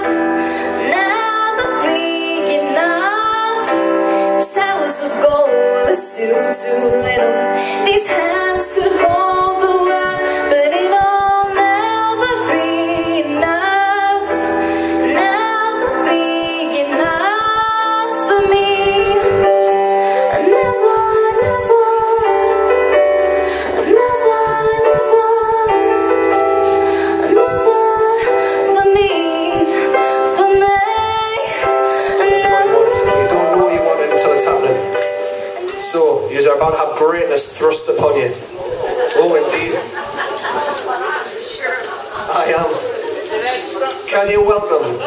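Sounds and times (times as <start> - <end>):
woman singing into microphone: 0.0 - 35.9
keyboard chords: 0.0 - 45.0.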